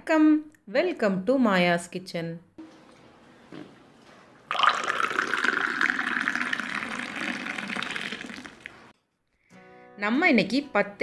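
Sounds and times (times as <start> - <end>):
hot drink pouring into glass: 4.5 - 8.9.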